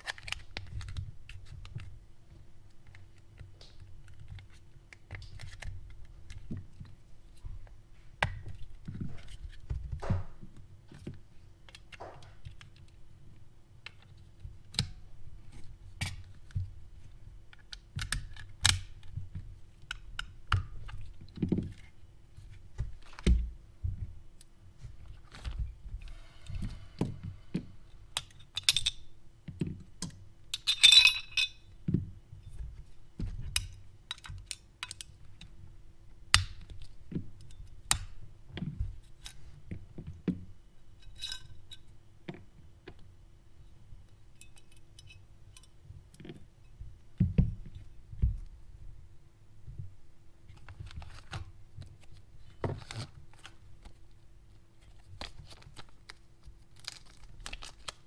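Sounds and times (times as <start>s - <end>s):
metal parts clicking and clinking: 30.5s - 31.6s.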